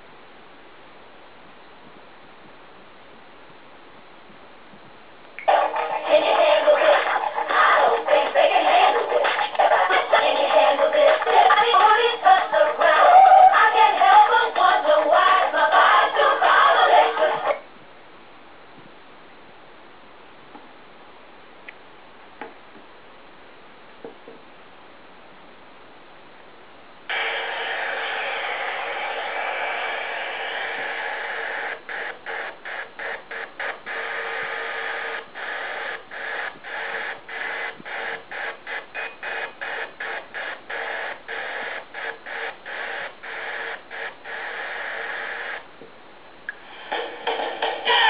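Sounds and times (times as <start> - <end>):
radio static hiss: 0.0 - 48.0.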